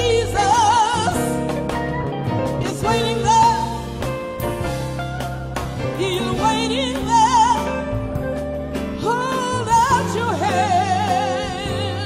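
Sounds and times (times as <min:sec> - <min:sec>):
person singing gospel: 0:00.0 - 0:01.5
band accompaniment: 0:00.0 - 0:12.0.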